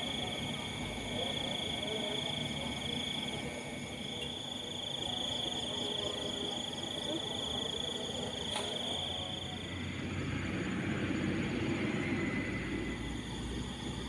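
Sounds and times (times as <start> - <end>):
faint pulsing insect calls: 0.0 - 14.0
insects trilling: 0.0 - 14.0.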